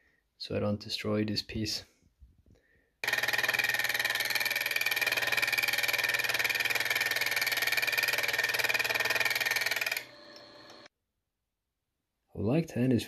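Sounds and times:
milling cutter cutting steel: 0:03.0 - 0:10.9.

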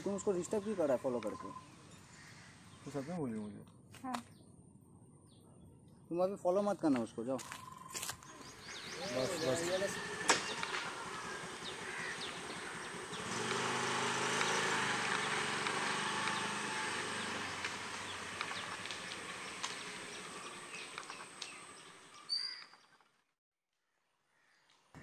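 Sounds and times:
scooter engine pulling away: 0:08.4 - 0:22.2.

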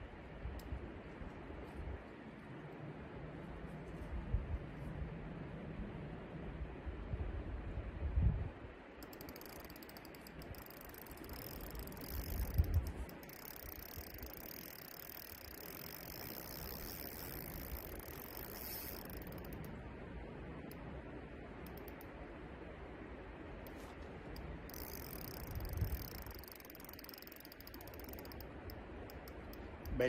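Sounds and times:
fishing reel ticking: 0:09.0 - 0:19.8, 0:21.6 - 0:22.2, 0:23.6 - 0:30.0.

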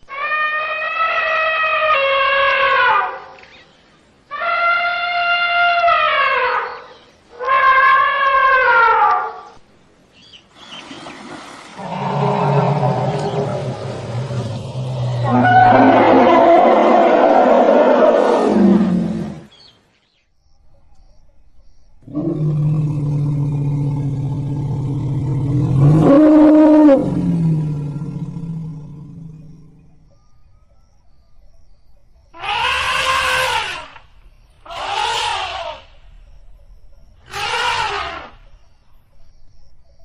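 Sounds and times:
elephant trumpeting: 0:00.1 - 0:03.3, 0:04.3 - 0:06.8, 0:11.8 - 0:19.5, 0:32.4 - 0:34.0, 0:34.7 - 0:35.9, 0:37.2 - 0:38.4.

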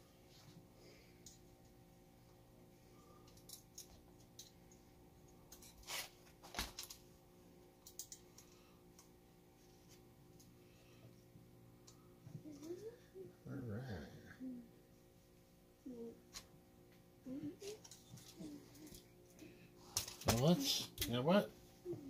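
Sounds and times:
small parts clicking and knocking: 0:03.2 - 0:05.9, 0:07.8 - 0:09.1, 0:20.0 - 0:21.1.

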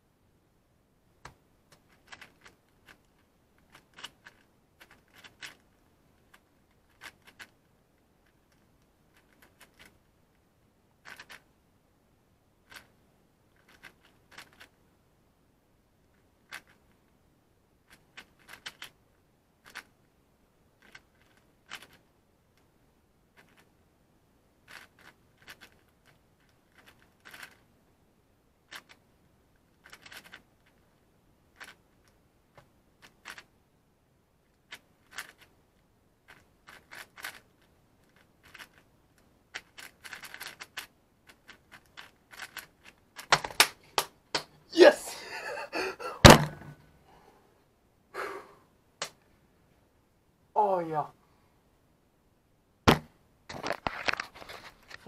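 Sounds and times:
plastic puzzle cube clicking: 0:01.2 - 0:10.0, 0:11.0 - 0:11.5, 0:12.6 - 0:14.8, 0:16.1 - 0:17.0, 0:17.9 - 0:19.0, 0:19.6 - 0:20.0, 0:20.8 - 0:22.7, 0:23.4 - 0:23.7, 0:24.6 - 0:27.7, 0:28.7 - 0:29.1, 0:29.7 - 0:30.8, 0:31.5 - 0:33.5, 0:34.5 - 0:35.5, 0:36.3 - 0:44.4.

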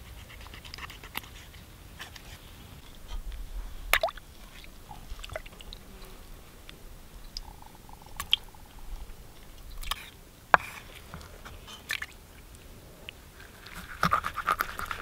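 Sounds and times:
wet squishing and dripping: 0:03.9 - 0:05.8, 0:07.3 - 0:10.1.

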